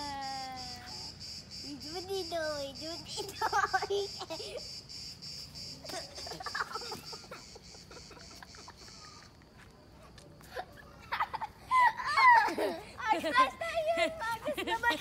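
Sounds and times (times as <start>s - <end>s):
insect pulsing chirp: 0.0s - 11.6s
children laughing: 2.8s - 4.8s, 5.8s - 9.5s, 10.4s - 15.0s.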